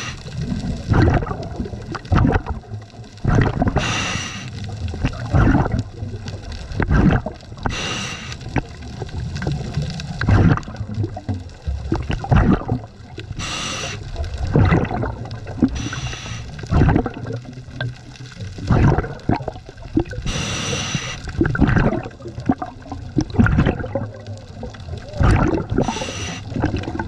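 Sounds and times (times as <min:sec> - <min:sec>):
regulator hissing inhalations: 0:00.0 - 0:00.3, 0:03.8 - 0:04.6, 0:07.7 - 0:08.5, 0:13.4 - 0:14.1, 0:15.7 - 0:16.6, 0:20.2 - 0:21.3, 0:25.8 - 0:26.6
gurgling exhaled bubbles: 0:00.0 - 0:27.0.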